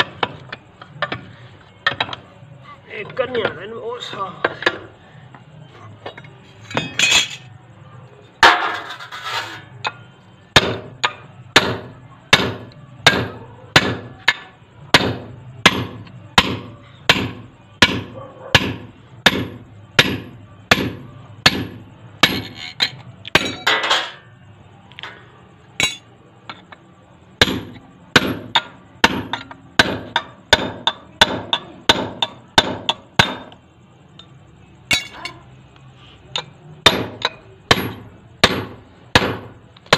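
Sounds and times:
steel sheet scraping: 0:08.6 - 0:09.7.

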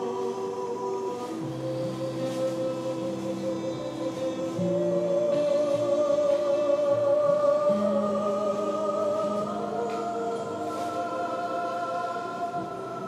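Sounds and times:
voices singing held chords: 0:00.0 - 0:13.0.

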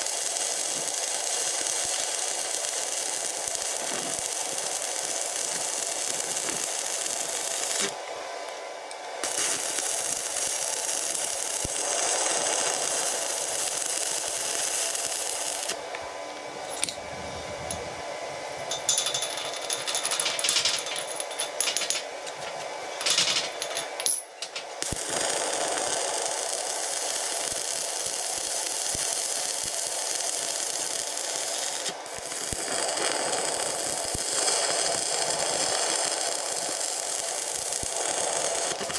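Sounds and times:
welding arc crackling and hissing: 0:00.0 - 0:08.6, 0:09.2 - 0:15.9, 0:24.5 - 0:38.9
metal knocks and clatters: 0:18.7 - 0:22.1, 0:23.0 - 0:24.6.

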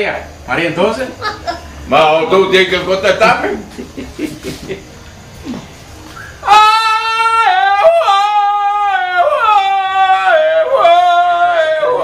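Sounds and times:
man's high falsetto cry: 0:06.3 - 0:10.2.

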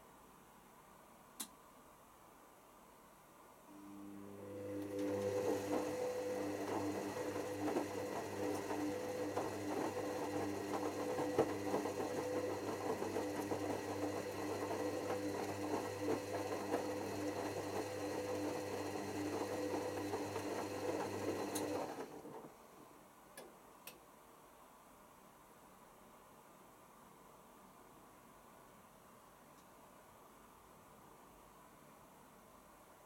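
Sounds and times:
washing machine drum whining hum: 0:03.8 - 0:22.8.

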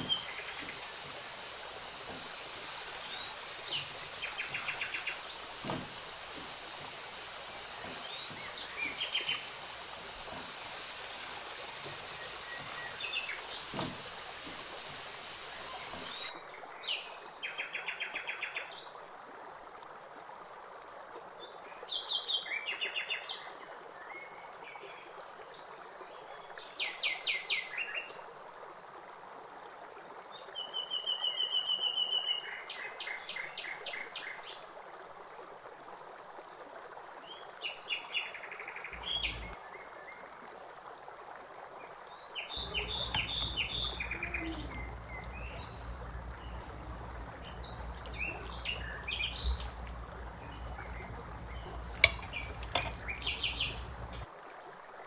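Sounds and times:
small birds chirping: 0:00.0 - 0:16.3, 0:38.9 - 0:39.6, 0:42.5 - 0:54.2
steady hiss: 0:00.0 - 0:16.3, 0:38.9 - 0:39.6, 0:42.5 - 0:54.3
low hum: 0:42.6 - 0:54.3.

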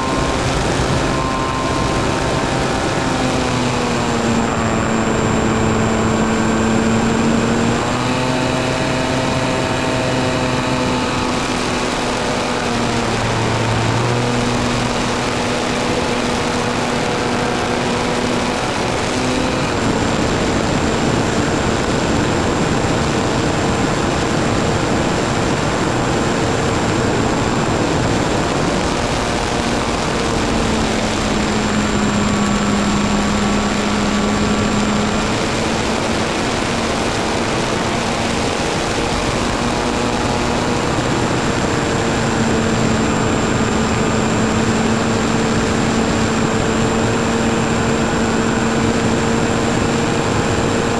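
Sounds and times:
propeller aircraft engine droning: 0:00.0 - 0:50.9
rushing wind noise: 0:00.0 - 0:50.9.

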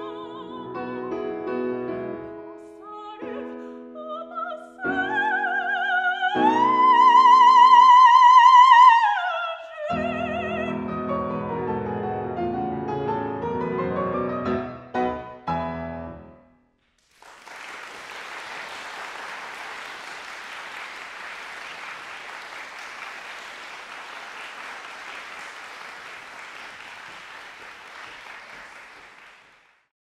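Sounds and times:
audience applauding: 0:17.0 - 0:29.9.

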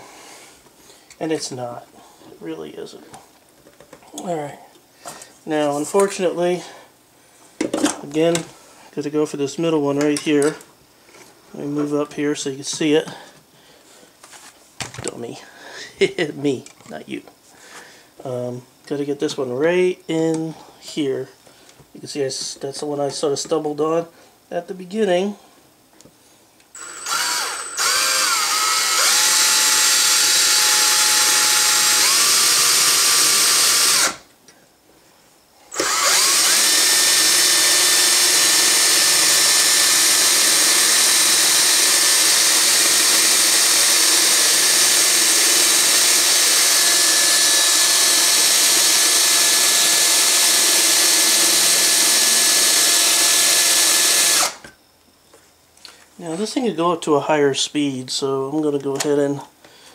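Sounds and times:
cordless drill whining: 0:26.8 - 0:34.2, 0:35.7 - 0:54.7
drill bit grinding into metal: 0:26.8 - 0:34.2, 0:35.7 - 0:54.6.

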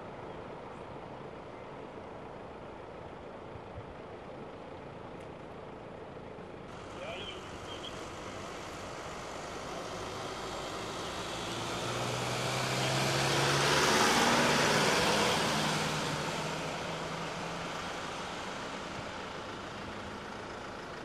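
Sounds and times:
van driving past: 0:06.7 - 0:21.0.

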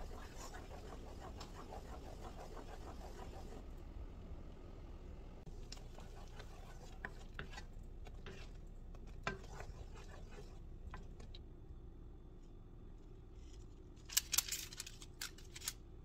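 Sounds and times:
spatula scraping a pan: 0:00.0 - 0:03.6, 0:05.6 - 0:11.1.

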